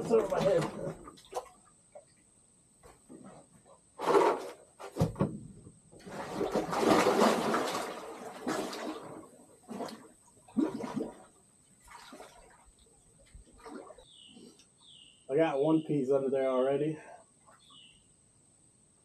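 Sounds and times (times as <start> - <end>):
water splashing and sloshing: 0.0 - 14.6
splashes into water: 6.0 - 12.7, 13.6 - 14.0.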